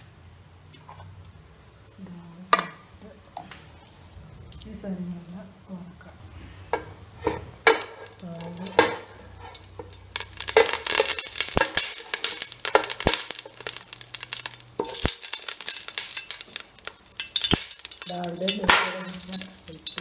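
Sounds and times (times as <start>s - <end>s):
fat sizzling in a pan: 6.4s - 20.0s
utensil knocking a pan: 6.8s - 9.1s, 17.2s - 20.0s.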